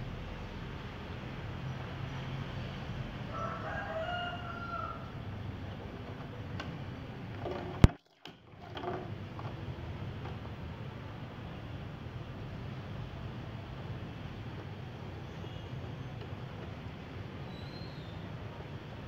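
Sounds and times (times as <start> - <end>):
rooster crowing: 3.2 - 5.3.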